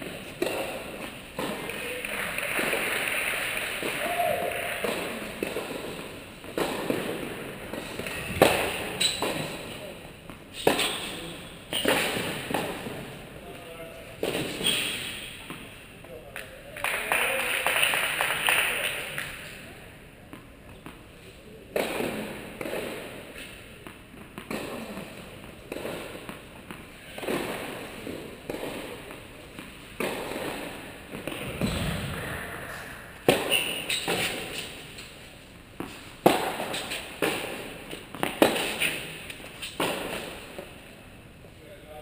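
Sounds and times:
ball bouncing on hard court: 0:00.0 - 0:01.8, 0:04.8 - 0:13.0, 0:21.7 - 0:35.1, 0:35.8 - 0:40.7
tennis ball hit with rackets: 0:00.3 - 0:01.7, 0:04.8 - 0:09.7, 0:10.3 - 0:11.2, 0:11.8 - 0:13.0, 0:21.7 - 0:34.8, 0:35.8 - 0:40.7
deep thump: 0:31.3 - 0:33.5.

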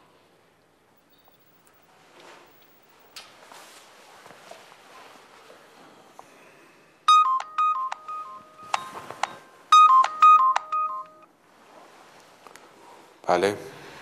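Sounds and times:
mobile phone ringtone beeps: 0:07.1 - 0:11.3.

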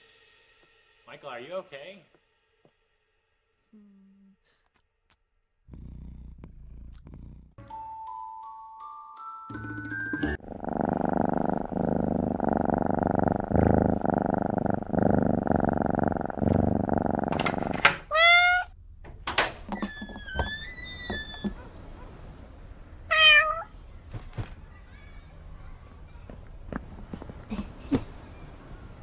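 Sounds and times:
cat purring: 0:05.6 - 0:07.6, 0:10.4 - 0:18.7, 0:26.6 - 0:28.8
cat meowing: 0:18.0 - 0:18.8, 0:23.1 - 0:23.7
thin drawn-out squeak: 0:19.8 - 0:21.7.

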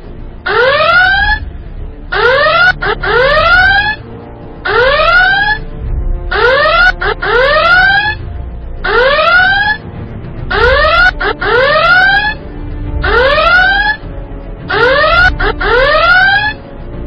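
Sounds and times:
electronic whooping alarm: 0:00.5 - 0:01.4, 0:02.1 - 0:04.0, 0:04.6 - 0:05.6, 0:06.3 - 0:08.2, 0:08.8 - 0:09.8, 0:10.5 - 0:12.4, 0:13.0 - 0:14.0, 0:14.7 - 0:16.6.

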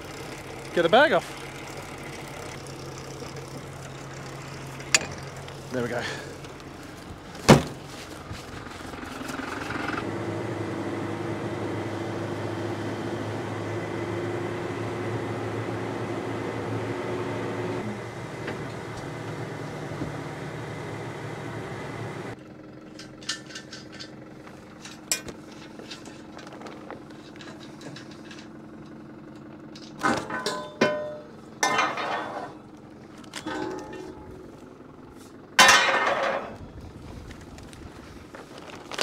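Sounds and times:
tractor engine running: 0:00.0 - 0:39.0
sharp clank: 0:30.0 - 0:32.6, 0:33.4 - 0:34.6, 0:35.6 - 0:36.6.

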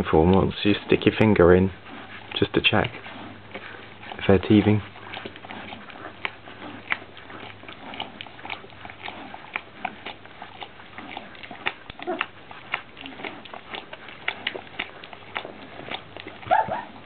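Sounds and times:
puppies sucking and smacking: 0:00.0 - 0:17.0
puppy squeak: 0:16.5 - 0:17.0.

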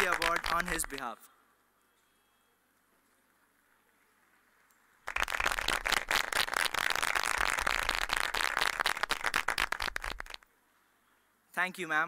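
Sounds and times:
audience applauding: 0:00.0 - 0:01.1, 0:05.0 - 0:10.4.

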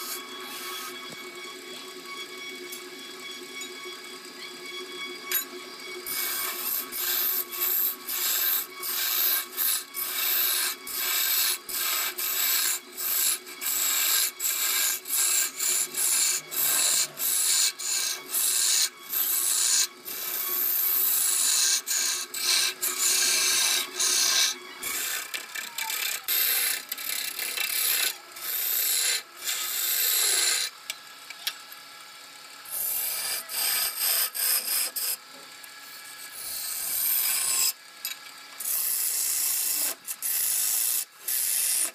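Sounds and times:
lathe humming: 0:00.0 - 0:31.1, 0:32.6 - 0:41.9
turning tool scraping wood: 0:06.1 - 0:30.7, 0:32.7 - 0:35.2.

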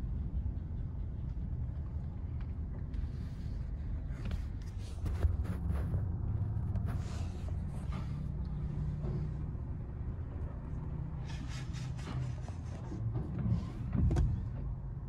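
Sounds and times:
steady low rumble: 0:00.0 - 0:11.4.

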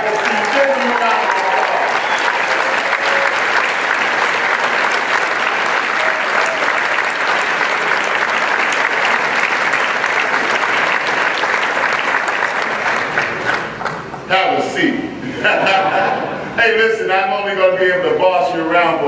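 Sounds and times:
audience applause: 0:00.0 - 0:14.3.

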